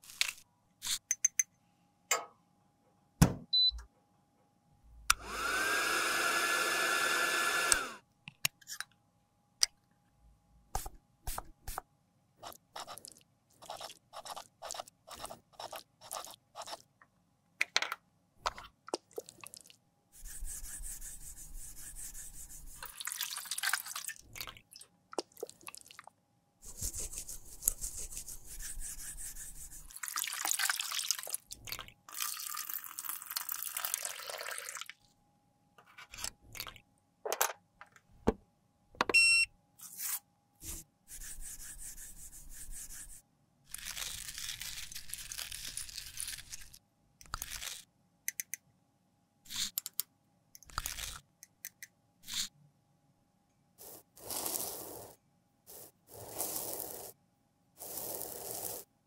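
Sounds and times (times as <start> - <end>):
brush scraping plastic jar: 53.8 - 57.2, 57.8 - 58.9
metal spoon scooping powder: 53.8 - 57.2, 57.8 - 58.9.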